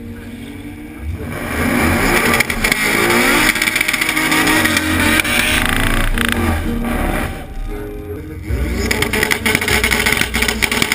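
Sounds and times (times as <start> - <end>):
engine at high revs: 0.0 - 7.7, 8.5 - 10.9
tyres spinning and squealing: 1.1 - 7.7.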